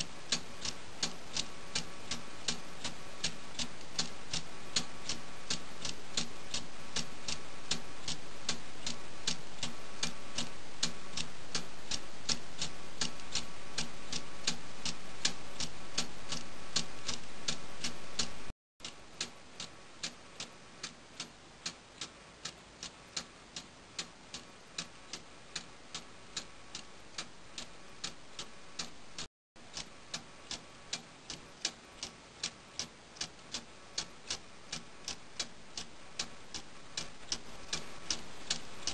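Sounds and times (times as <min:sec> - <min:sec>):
clock ticking: 0:00.0 - 0:38.9.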